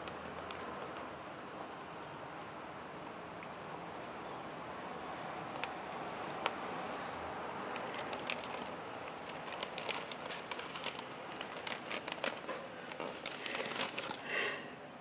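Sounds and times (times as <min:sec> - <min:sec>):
paper crinkling: 0:07.7 - 0:14.3.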